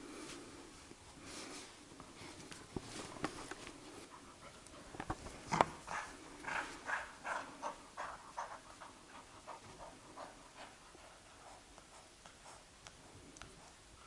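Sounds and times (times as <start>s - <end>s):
dog panting: 3.8s - 12.8s.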